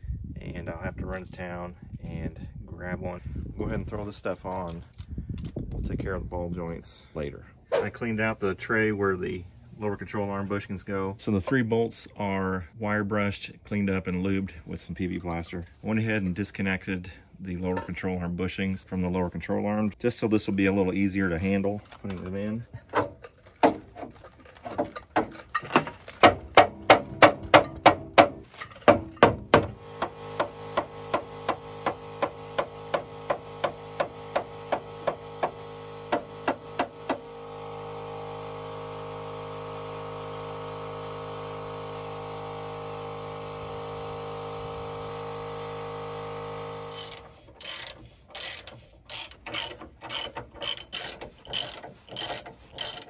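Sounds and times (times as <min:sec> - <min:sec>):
hand ratchet clicking: 0:46.9 - 0:53.0.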